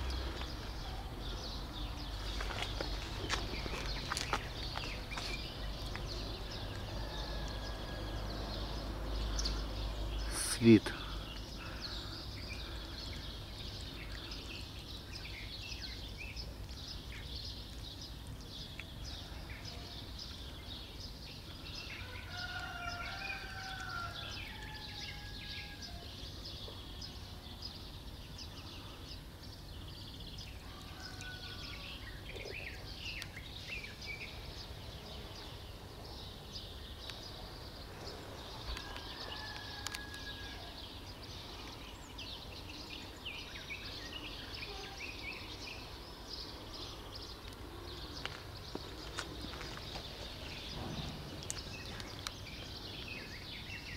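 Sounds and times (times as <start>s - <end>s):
small birds chirping: 0.0s - 53.9s.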